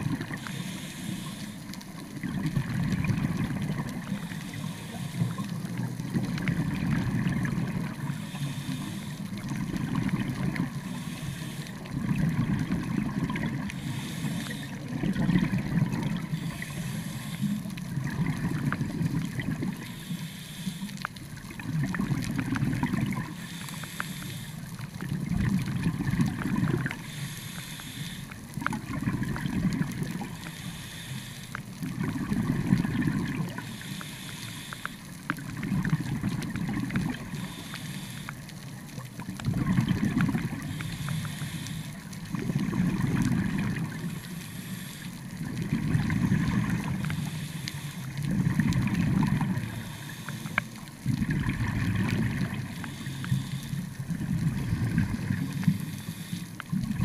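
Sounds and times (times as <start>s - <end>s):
exhaled bubbles rumbling: 0.0s - 0.6s, 2.0s - 8.2s, 9.2s - 11.2s, 11.8s - 20.0s, 21.0s - 23.4s, 24.6s - 27.2s, 28.4s - 30.5s, 31.7s - 33.8s, 35.2s - 37.5s, 38.6s - 40.9s, 42.0s - 44.3s, 45.2s - 47.4s, 48.1s - 50.0s, 50.7s - 53.0s, 53.8s - 55.8s, 56.6s - 57.0s
regulator hiss on inhale: 0.1s - 12.2s, 12.8s - 15.0s, 16.1s - 18.0s, 19.2s - 21.6s, 22.8s - 25.0s, 26.3s - 28.7s, 29.3s - 35.9s, 36.9s - 39.0s, 40.2s - 51.1s, 52.0s - 56.9s.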